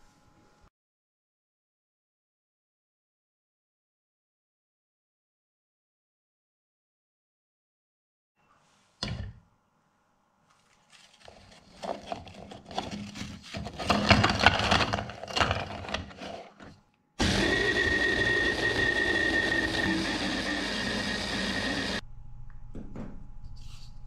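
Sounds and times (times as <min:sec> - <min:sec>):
biscuits clattering in plastic bowl: 0:11.7 - 0:16.7
hand blender chopper whining: 0:17.2 - 0:22.0.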